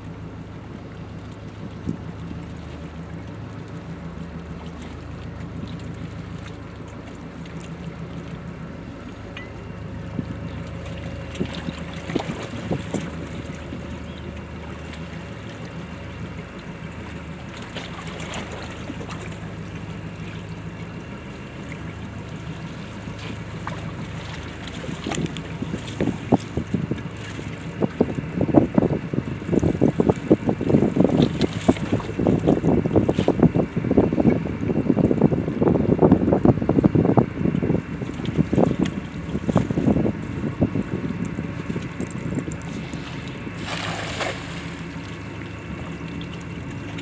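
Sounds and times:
ship engines droning: 0.0s - 47.0s
wind buffeting microphone: 9.7s - 17.0s, 17.9s - 46.0s.

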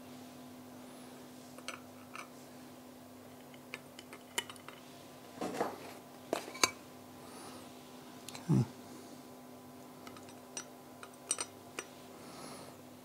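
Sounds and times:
clicks and taps of hard parts: 10.0s - 11.9s.

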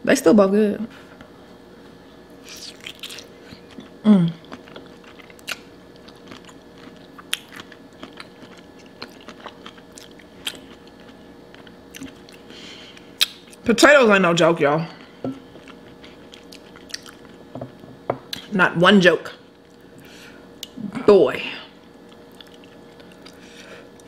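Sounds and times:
wet chewing and mouth smacks: 2.4s - 13.6s, 15.0s - 17.4s, 22.0s - 24.0s.

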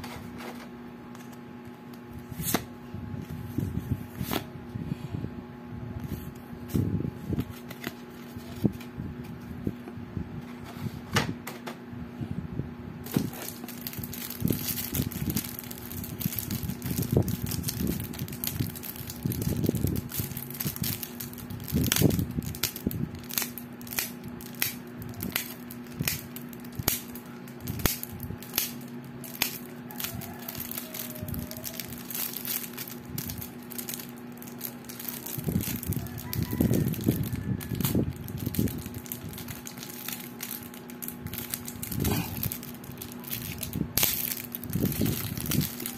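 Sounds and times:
steady low hum: 0.0s - 45.9s
plastic wrap crinkling: 13.0s - 45.9s.

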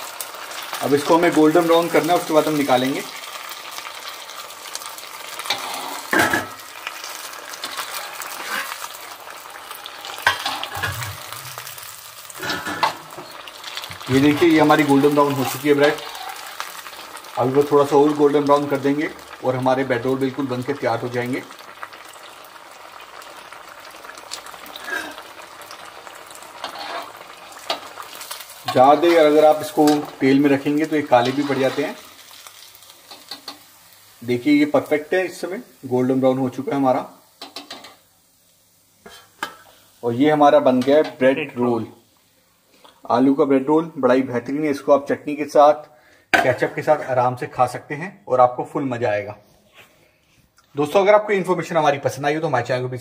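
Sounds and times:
deep-frying sizzle in hot oil: 0.0s - 47.9s.

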